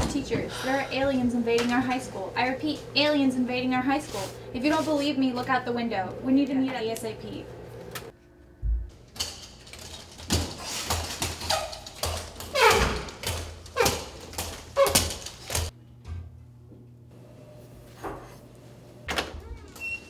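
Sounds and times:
inline skates on tiled floor: 0:09.1 - 0:15.7.

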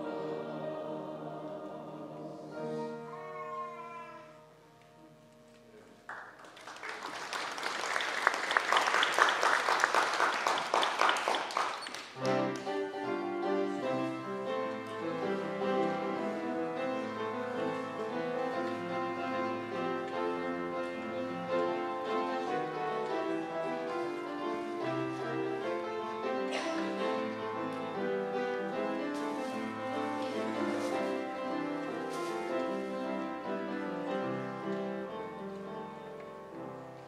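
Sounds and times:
quiet upright piano piece: 0:00.0 - 0:06.1, 0:12.1 - 0:37.0
congregation clapping: 0:05.8 - 0:12.9.

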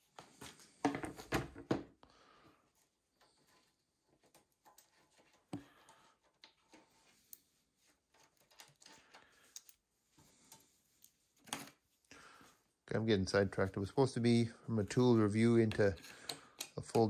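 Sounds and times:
hands handling motorcycle parts: 0:02.8 - 0:12.0.

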